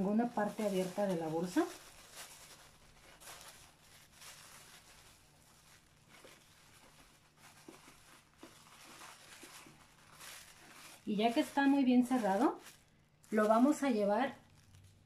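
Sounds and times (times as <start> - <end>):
plastic bag rustling: 0.0 - 15.0.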